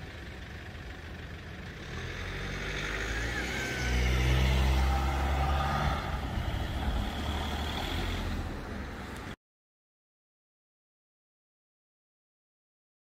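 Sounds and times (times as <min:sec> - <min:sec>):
heavy vehicle passing: 0:01.6 - 0:09.4.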